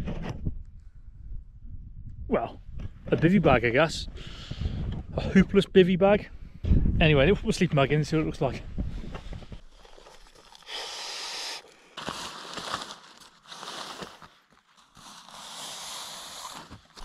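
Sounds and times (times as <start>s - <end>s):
sleeping bag pulled from sack: 9.8s - 17.0s
nylon fabric crinkling: 11.7s - 17.0s.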